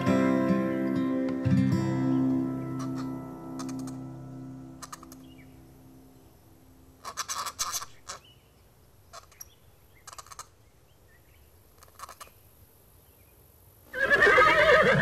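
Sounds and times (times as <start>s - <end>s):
small chirps: 2.8s - 4.1s, 4.8s - 5.5s
scratchy rasps: 10.0s - 10.5s
horse whinnying: 13.9s - 15.0s.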